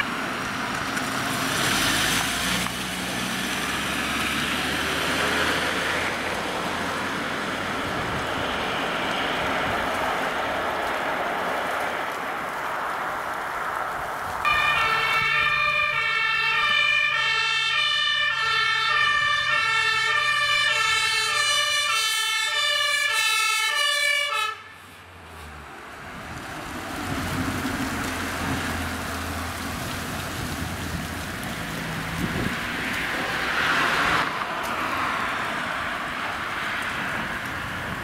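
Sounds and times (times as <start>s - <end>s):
truck engine and tyre noise: 0.0s - 38.0s
fire engine two-tone siren: 14.4s - 24.9s.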